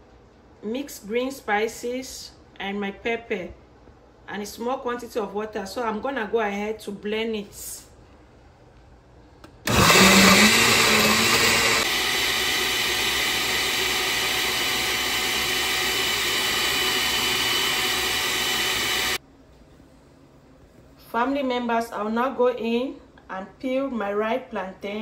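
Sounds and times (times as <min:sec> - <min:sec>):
blender chopping vegetables: 0:09.7 - 0:19.2.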